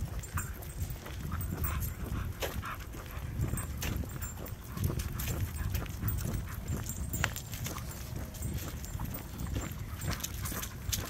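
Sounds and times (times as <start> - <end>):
footsteps on asphalt: 0.0 - 11.0
dog claws clicking on asphalt: 0.1 - 11.0.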